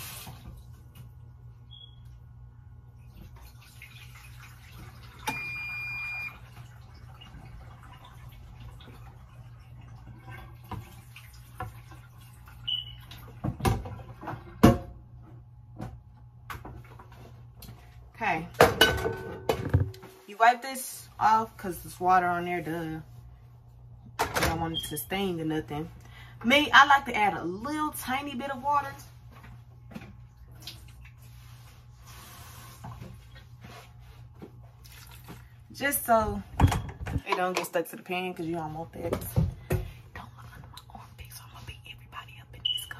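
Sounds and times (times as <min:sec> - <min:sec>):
water splashing and draining: 0:03.0 - 0:05.4, 0:06.3 - 0:13.4, 0:34.8 - 0:35.6.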